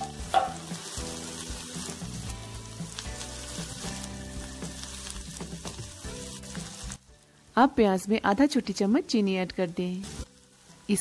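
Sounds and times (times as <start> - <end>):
spatula stirring in a pan: 0.0 - 7.2, 10.0 - 11.0
background music: 0.0 - 11.0
onion sizzling in hot oil: 0.0 - 11.0.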